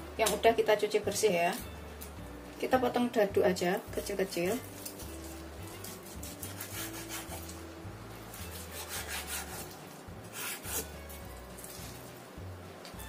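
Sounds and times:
knife slicing meat on wooden board: 4.7s - 7.6s, 8.3s - 11.9s.

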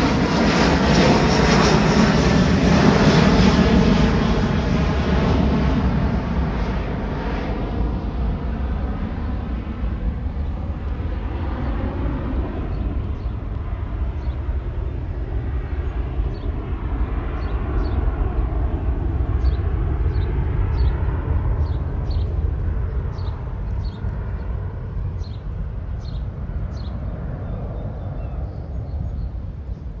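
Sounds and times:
jet engine rumble: 0.0s - 30.0s
small birds chirping: 12.5s - 30.0s.

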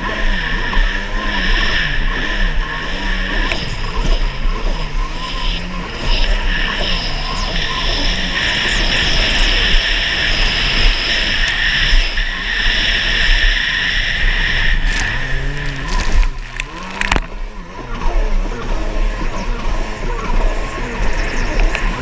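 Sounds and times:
jet ski engine running: 0.0s - 22.0s
wind noise: 0.0s - 22.0s
water spray: 5.4s - 17.1s.

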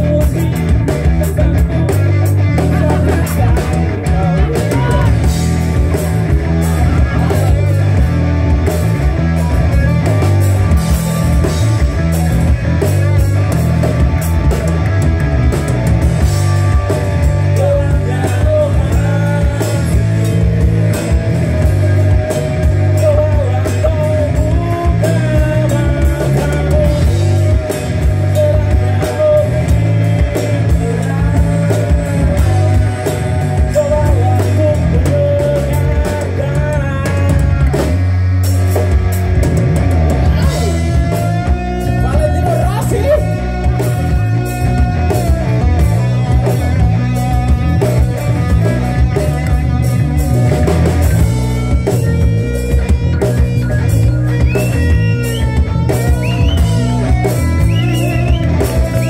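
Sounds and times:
person singing into microphone: 0.0s - 5.4s, 16.7s - 37.9s, 40.2s - 46.8s
drum kit: 0.0s - 59.0s
electric bass guitar: 0.0s - 59.0s.

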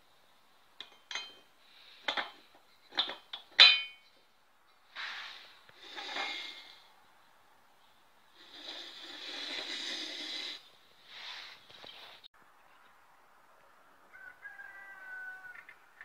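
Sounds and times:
metal engine parts clinking: 0.8s - 4.2s
engine scraping on tiled floor: 5.0s - 6.8s, 8.4s - 12.3s.

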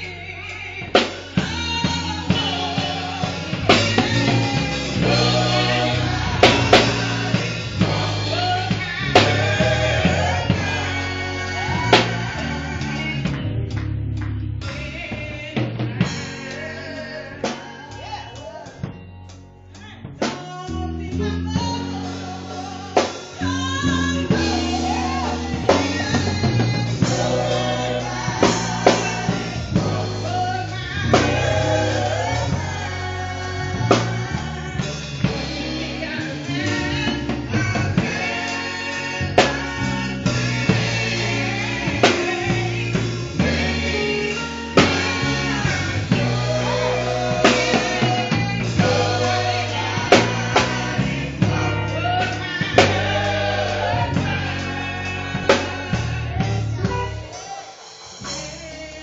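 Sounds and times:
women singing gospel: 0.0s - 13.9s, 14.6s - 19.2s, 19.8s - 59.0s
band playing: 0.0s - 59.0s
drum hits: 1.0s - 11.2s, 40.4s - 54.7s.

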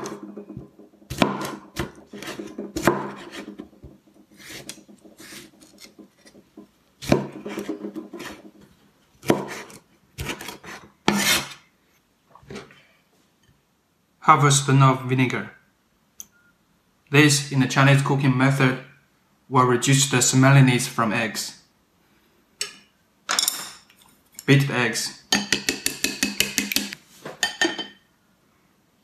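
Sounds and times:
knife chopping on wooden board: 0.0s - 8.6s, 9.2s - 11.4s.

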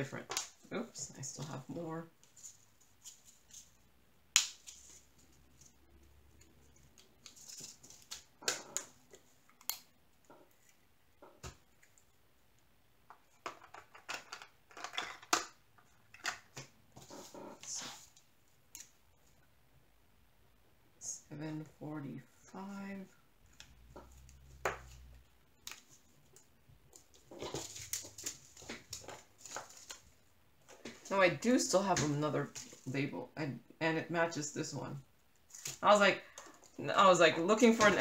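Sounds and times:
plastic bags rustling and crinkling: 27.0s - 31.1s.

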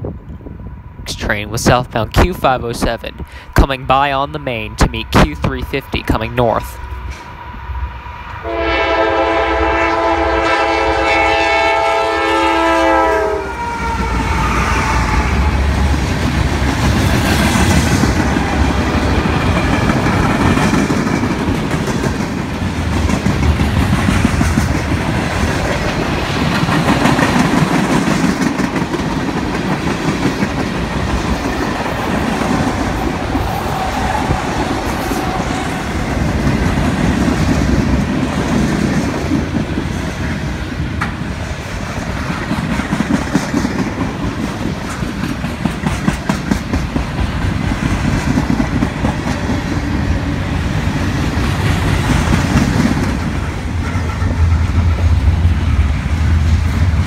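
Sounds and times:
freight train wheels rumbling: 0.0s - 57.0s
locomotive horn blast: 8.4s - 15.8s.

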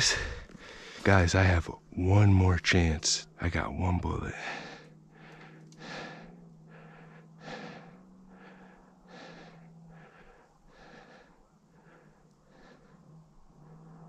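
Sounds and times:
man breathing: 0.0s - 1.2s, 4.4s - 14.0s
faint low hum: 0.0s - 14.0s.

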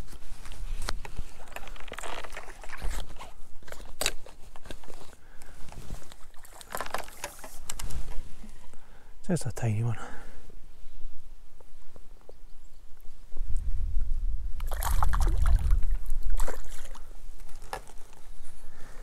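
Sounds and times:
wind buffeting microphone: 13.2s - 17.4s
small waves lapping: 14.6s - 17.8s.

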